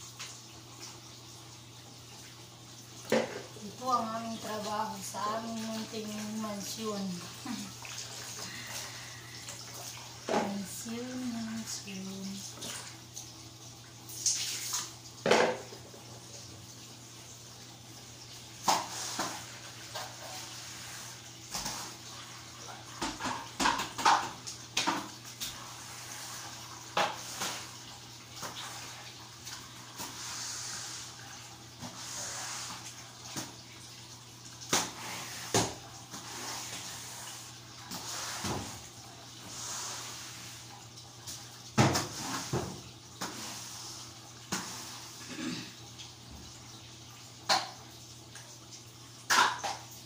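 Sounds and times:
broom scrubbing wet floor: 3.1 - 12.9, 18.6 - 23.0, 25.3 - 33.6, 34.7 - 45.4.

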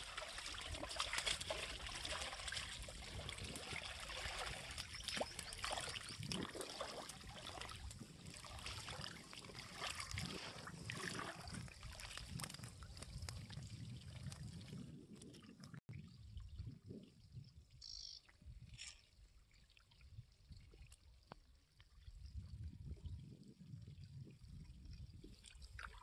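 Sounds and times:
water splashing around legs: 0.0 - 15.7.

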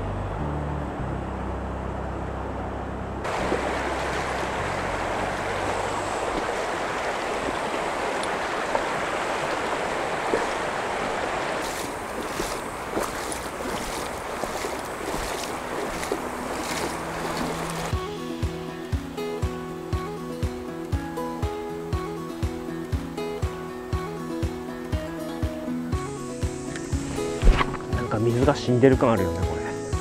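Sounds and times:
shallow river rushing: 3.2 - 30.0
feet splashing through water: 3.3 - 18.1, 26.0 - 28.1.

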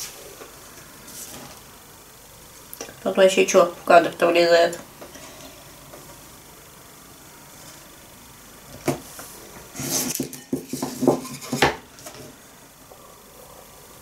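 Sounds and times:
cutting board scraping slide: 9.1 - 12.3
crockery clinking and knocking: 10.1 - 11.8.

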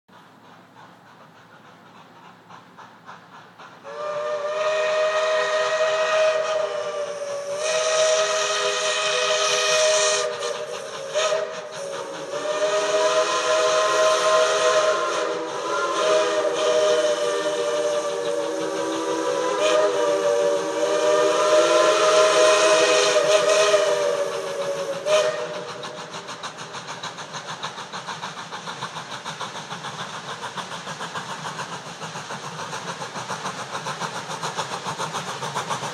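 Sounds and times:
steam train running: 0.1 - 35.9
steam train whistles: 3.8 - 28.4.

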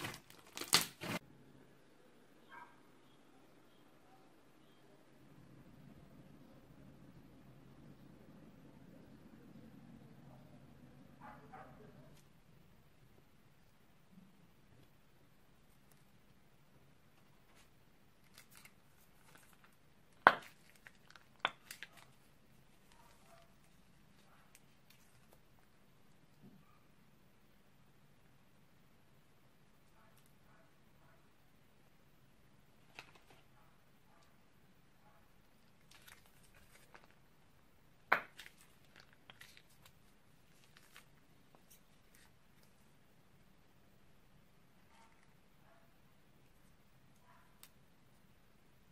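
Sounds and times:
plastic piping bag crinkling: 0.0 - 1.2, 17.5 - 25.4, 35.6 - 37.4, 38.2 - 42.9.

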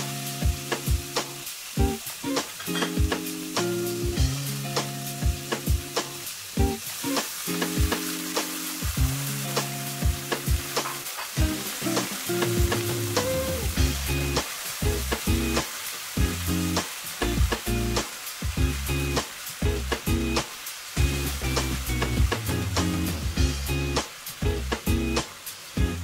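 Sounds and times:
soft background music: 0.0 - 20.4
meat sizzling in a wok: 0.0 - 26.0.

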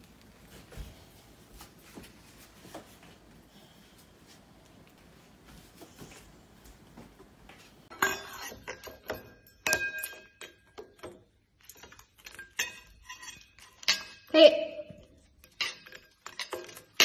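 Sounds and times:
metal bowls clinking and ringing: 7.9 - 10.8, 11.6 - 17.0.

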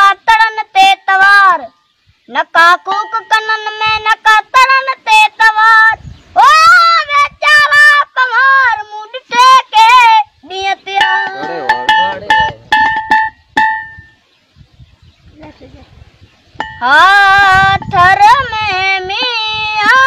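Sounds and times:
high singing voice: 0.0 - 13.1, 16.6 - 20.0
plucked notes: 11.0 - 14.2.

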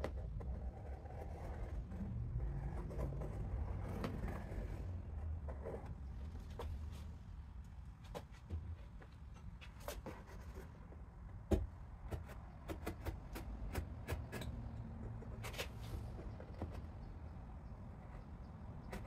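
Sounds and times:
low steady rumble: 0.1 - 7.7.

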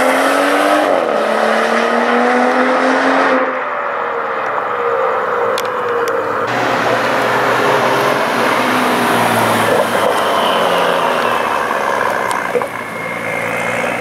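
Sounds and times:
car driving past: 6.5 - 14.0.

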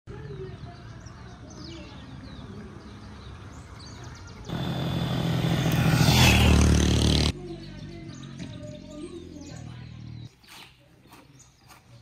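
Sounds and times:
vehicle engine humming: 4.5 - 7.6.

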